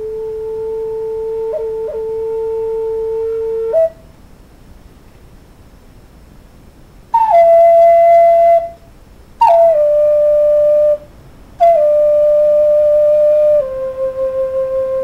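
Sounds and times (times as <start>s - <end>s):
solo flute long notes: 0.0s - 4.1s, 7.1s - 15.0s.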